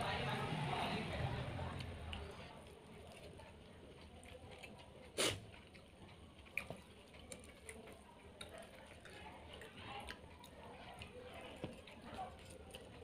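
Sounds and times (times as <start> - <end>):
soft chewing: 0.0 - 13.0.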